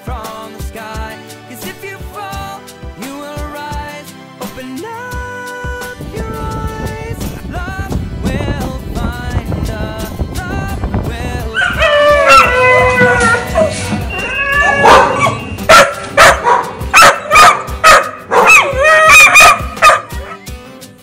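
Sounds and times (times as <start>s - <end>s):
dog whining: 11.6s - 16.7s, 18.4s - 20.5s
dog barking high barks: 11.6s - 20.4s.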